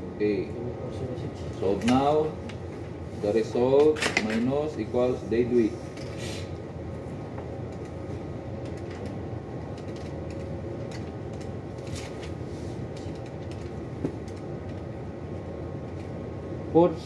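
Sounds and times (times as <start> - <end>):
low background hum: 0.0 - 17.0
pens scratching and tapping on paper: 8.6 - 14.8.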